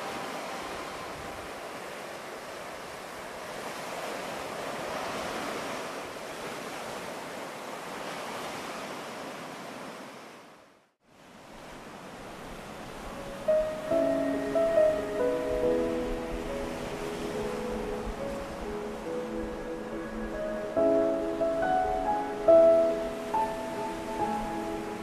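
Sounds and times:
ocean waves washing ashore: 0.0s - 25.0s.

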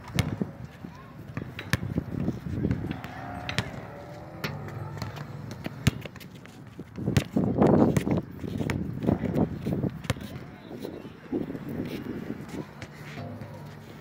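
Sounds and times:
basketball bouncing on hard court: 0.1s - 0.4s, 2.7s - 6.2s.

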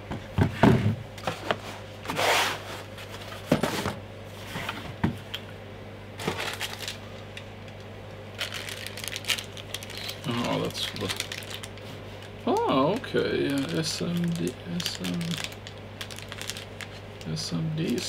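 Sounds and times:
packaging rustle: 6.2s - 7.0s, 8.4s - 17.1s.

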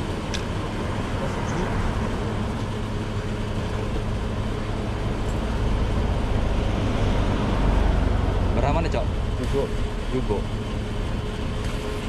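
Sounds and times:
fuel pump humming: 0.0s - 12.0s.

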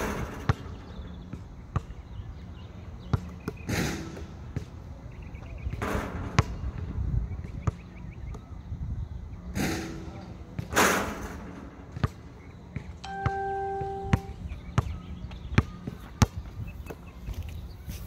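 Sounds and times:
basketball bouncing on asphalt: 0.4s - 4.8s, 5.7s - 8.5s, 11.9s - 13.4s.

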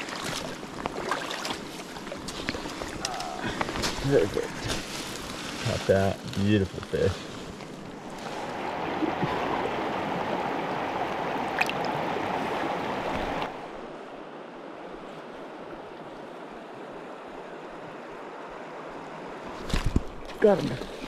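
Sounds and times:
river water rushing over rocks: 7.9s - 13.8s.

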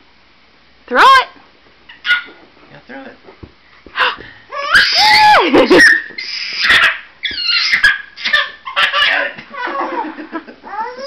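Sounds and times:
short high-pitched cries: 4.7s - 8.4s.

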